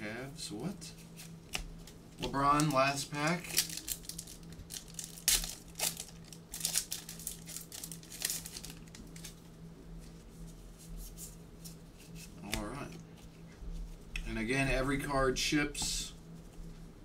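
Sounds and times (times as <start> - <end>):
foil wrapper crinkling: 2.5 - 9.4.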